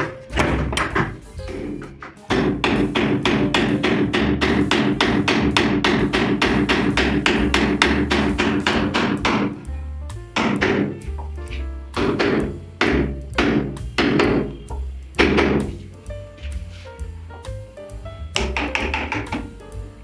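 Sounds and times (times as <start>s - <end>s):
hatchet striking wood: 0.0s - 9.6s, 10.4s - 10.9s, 12.0s - 15.8s, 18.4s - 19.5s
background music: 0.0s - 20.0s.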